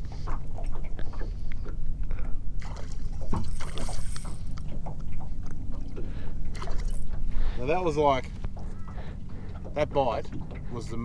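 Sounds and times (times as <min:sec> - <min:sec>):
boat engine low hum: 0:00.0 - 0:11.0
water splashing: 0:02.6 - 0:11.0.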